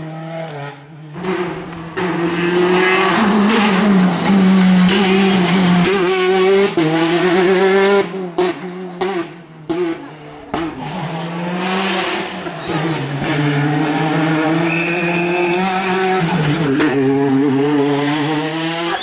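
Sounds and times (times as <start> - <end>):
rally car engine at high revs: 0.0 - 19.0
tyre squeal: 14.4 - 16.5, 18.8 - 19.0.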